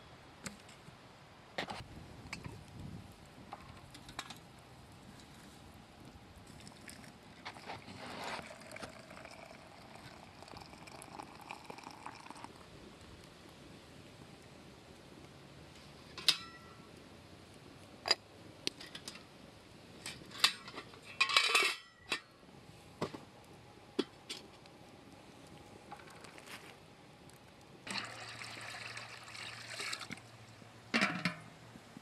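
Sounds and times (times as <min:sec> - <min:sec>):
teapot and kettle clinking: 0:06.6 - 0:12.6, 0:16.2 - 0:16.8, 0:27.9 - 0:30.2, 0:30.9 - 0:31.5
rush of liquid: 0:27.9 - 0:30.3.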